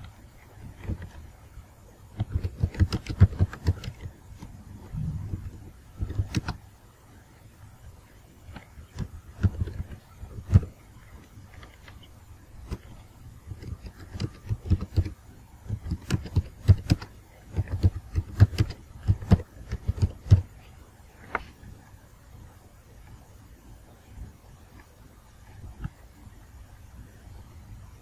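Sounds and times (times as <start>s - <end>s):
computer keyboard typing: 2.2s - 4.1s, 6.0s - 6.6s, 8.5s - 10.7s, 12.6s - 20.5s.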